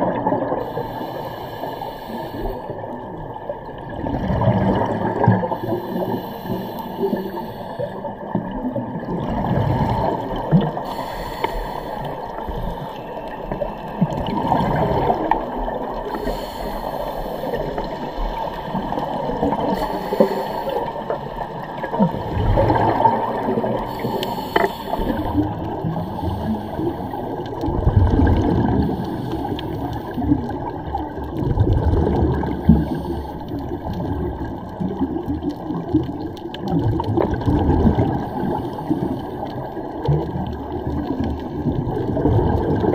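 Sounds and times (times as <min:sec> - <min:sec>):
underwater regulator bubbles gurgling: 0:00.0 - 0:42.9.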